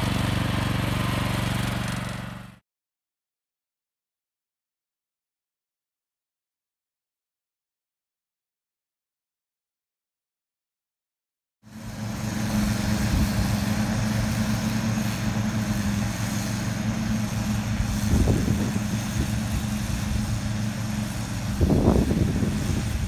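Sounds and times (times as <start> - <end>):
ride-on mower engine running: 0.0 - 2.6, 11.6 - 23.0
low engine rumbles: 11.7 - 23.0.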